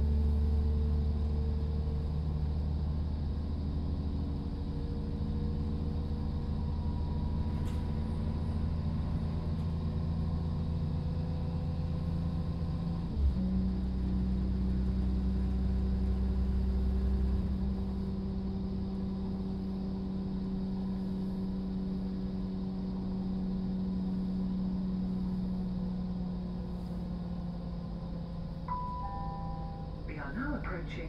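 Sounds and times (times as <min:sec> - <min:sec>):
diesel engine droning: 0:00.0 - 0:31.0
train rumbling: 0:00.0 - 0:31.0
steady hum: 0:28.1 - 0:31.0.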